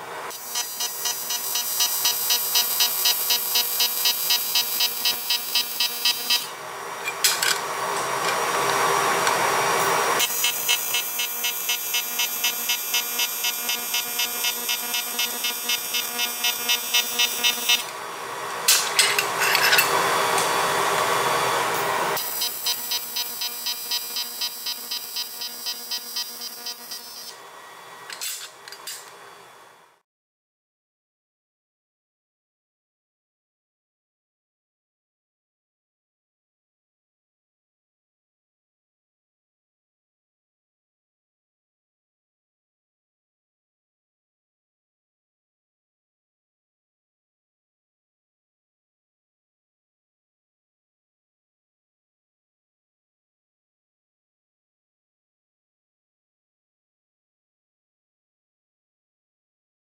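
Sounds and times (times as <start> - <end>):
welding arc buzzing: 0.3 - 6.6, 8.5 - 18.0, 22.2 - 27.4.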